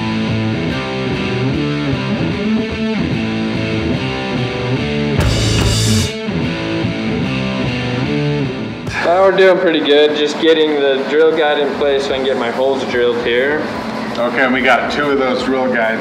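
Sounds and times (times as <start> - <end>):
electric guitar music with beat: 0.0 - 9.0.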